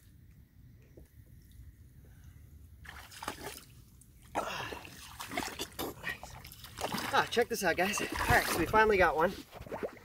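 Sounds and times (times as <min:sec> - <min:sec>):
water splashing from wading: 0:02.8 - 0:10.0.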